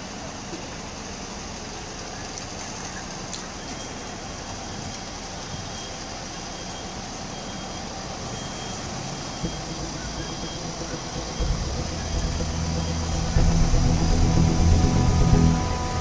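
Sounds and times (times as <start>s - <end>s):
fire engine diesel idling: 0.0s - 16.0s
street traffic: 0.0s - 16.0s
faint high beep: 3.5s - 16.0s.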